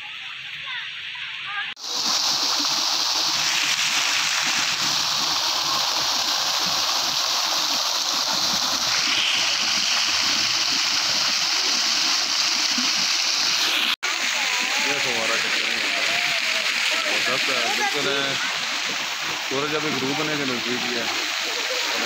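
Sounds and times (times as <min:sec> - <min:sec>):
fountain water splashing: 0:00.0 - 0:22.0.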